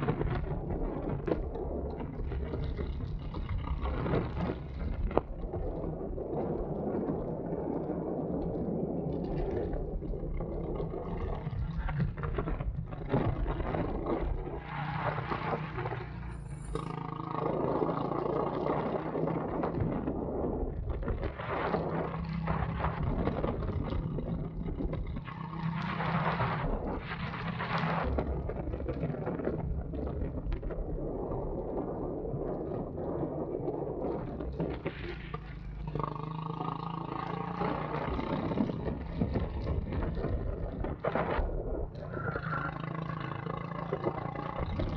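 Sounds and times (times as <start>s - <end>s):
go-kart engine running: 0.0s - 5.3s, 10.3s - 30.5s, 34.5s - 44.9s.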